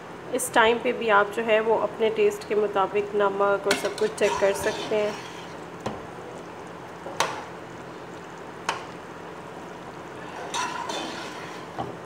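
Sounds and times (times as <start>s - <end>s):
food simmering in a pot: 3.0s - 12.0s.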